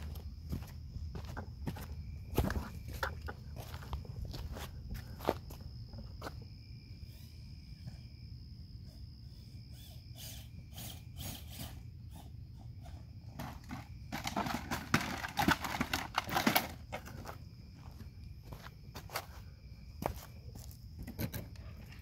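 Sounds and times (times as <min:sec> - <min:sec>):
footsteps on rocky dirt trail: 0:00.0 - 0:06.4, 0:13.4 - 0:20.8.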